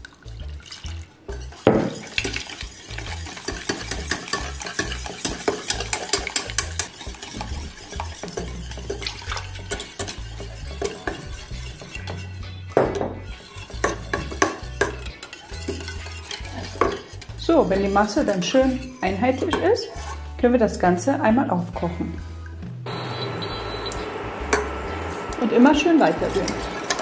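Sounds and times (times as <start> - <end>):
whisk clinking against metal pan: 0.6 - 20.2, 26.2 - 27.0.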